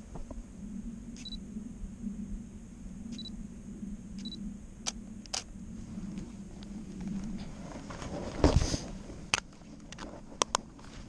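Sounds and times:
camera focus beeps: 1.2s - 1.4s, 3.1s - 3.3s, 4.2s - 4.4s
camera shutter clicks: 5.3s - 5.5s.

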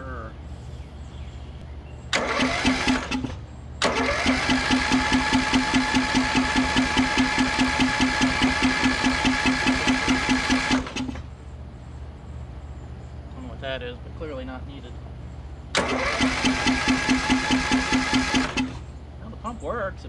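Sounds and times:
engine cranking with starter whine: 2.1s - 11.3s, 15.7s - 18.9s.

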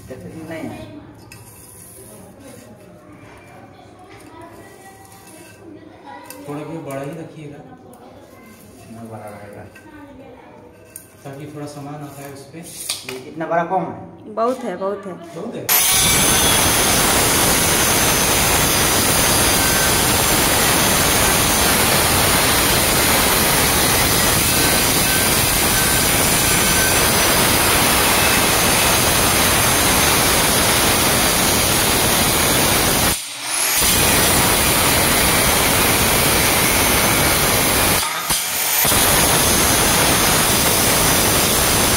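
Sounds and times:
electric stone cutter grinding: 15.7s - 41.9s.

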